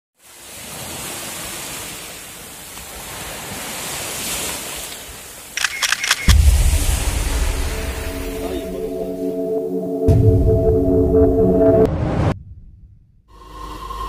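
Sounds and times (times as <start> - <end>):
waves washing onto sand: 0.2 - 8.7
sharp clicks: 5.6 - 6.6.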